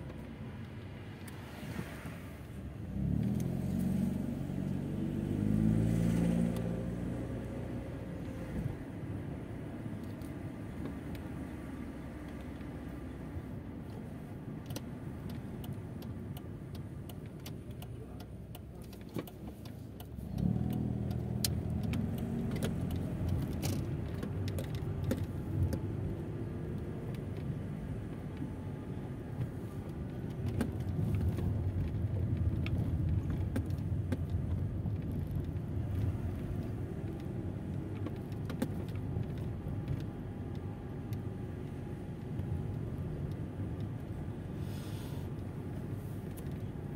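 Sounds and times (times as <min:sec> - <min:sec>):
car engine hum: 0:00.0 - 0:46.9
road noise: 0:00.0 - 0:46.9
light clicks and rattles: 0:14.6 - 0:44.2.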